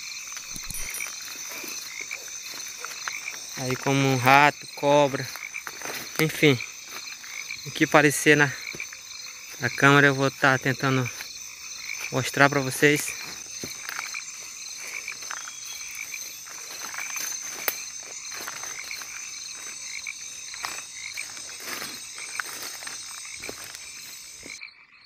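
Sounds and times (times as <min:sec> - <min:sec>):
rhythmic pulsed calls: 0:00.0 - 0:18.5
frogs and insects trilling: 0:00.0 - 0:25.0.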